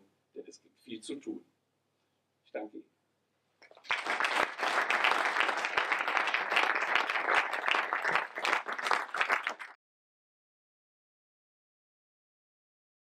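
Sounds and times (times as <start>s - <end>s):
audience applauding: 3.7s - 9.8s.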